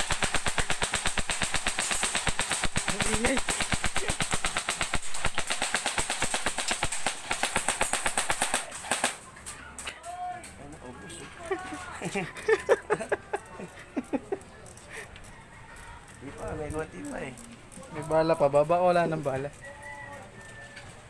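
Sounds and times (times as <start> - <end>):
rifle firing on full automatic: 0.0 - 9.2.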